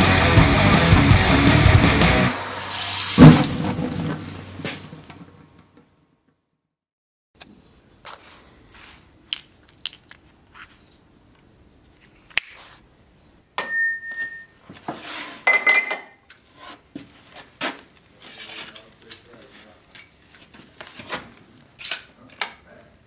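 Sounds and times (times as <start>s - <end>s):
metal tools clinking on workbench: 15.5s - 16.4s.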